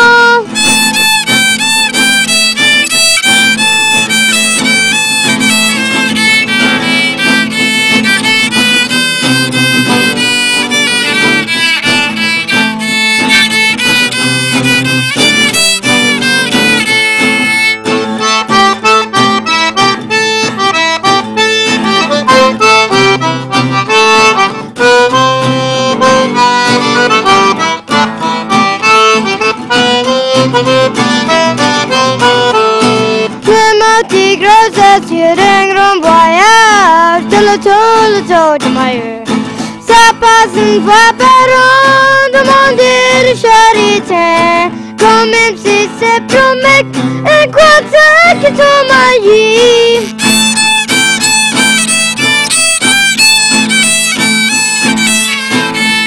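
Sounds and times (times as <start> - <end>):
button accordion: 0.0 - 56.0
fiddle playing lead: 0.0 - 56.0
strummed acoustic guitar: 0.0 - 56.0.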